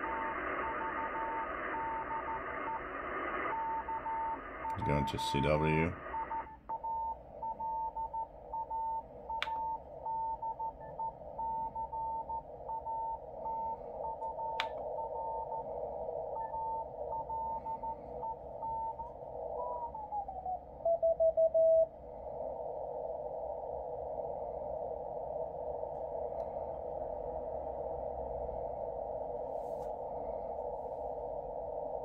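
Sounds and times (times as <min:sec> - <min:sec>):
radio band hiss: 0:00.0 - 0:06.6
morse code tone: 0:03.5 - 0:09.0.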